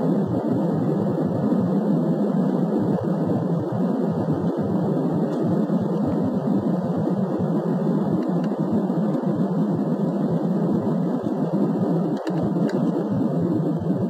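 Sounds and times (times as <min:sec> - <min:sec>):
jet engines and airflow in cabin: 0:00.0 - 0:14.0.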